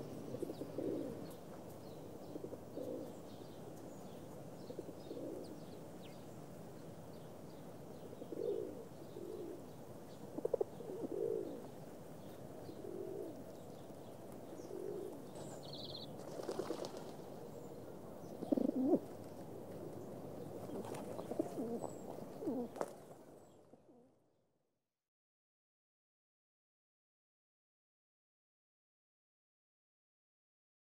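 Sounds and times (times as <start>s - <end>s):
pigeons cooing: 0.0s - 1.4s, 2.0s - 5.7s, 7.9s - 24.1s.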